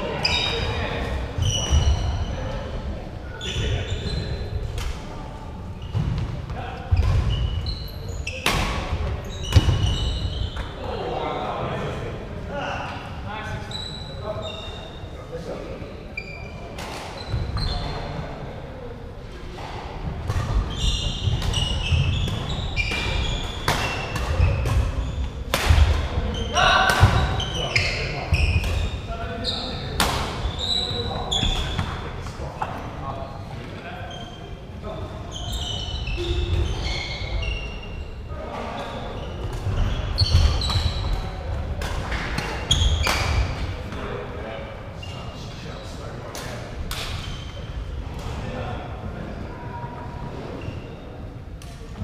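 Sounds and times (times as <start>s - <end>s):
shoes squeaking: 0.2s - 2.4s, 6.9s - 10.8s, 13.7s - 15.0s, 16.2s - 18.0s, 20.6s - 25.4s, 26.4s - 32.0s, 34.0s - 41.4s, 42.1s - 43.6s.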